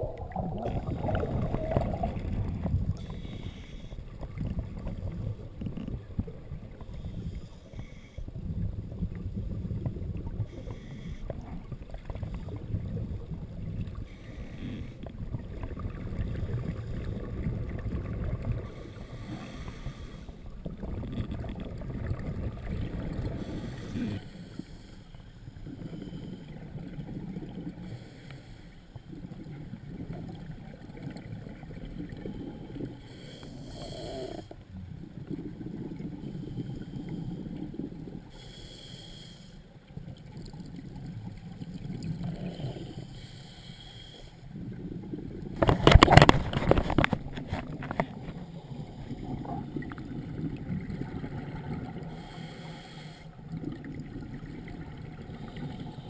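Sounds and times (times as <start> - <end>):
exhaled bubbles: 0.0 - 7.4, 15.0 - 19.7, 20.6 - 24.3, 33.8 - 38.4, 44.5 - 52.4, 53.4 - 56.0
diver breathing through regulator: 3.0 - 4.4, 6.8 - 8.4, 10.4 - 11.5, 14.0 - 15.2, 18.6 - 20.5, 23.2 - 26.7, 27.8 - 29.0, 32.3 - 34.6, 36.1 - 37.6, 38.3 - 39.7, 42.3 - 44.5, 52.0 - 53.4.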